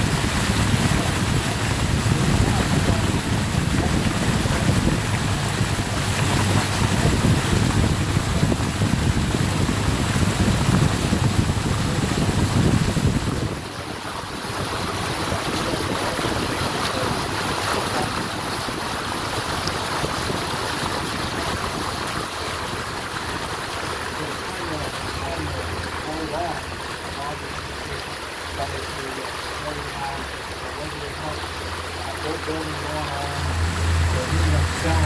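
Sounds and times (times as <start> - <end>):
wind on microphone: 0.0 - 27.3
boat motor: 0.0 - 35.0
water rushing: 0.0 - 35.0.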